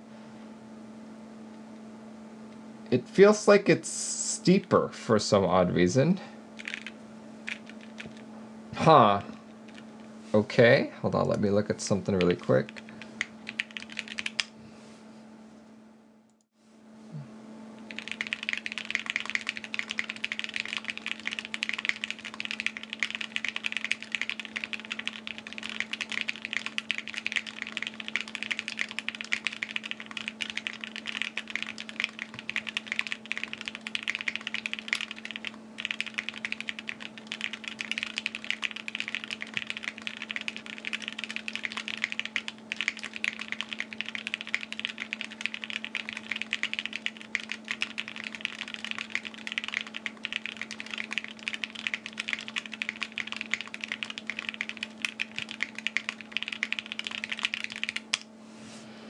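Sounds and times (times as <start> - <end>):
steady low hum: 0.0 - 59.0
mechanical keyboard typing: 6.6 - 8.2, 12.1 - 14.5, 17.9 - 58.2.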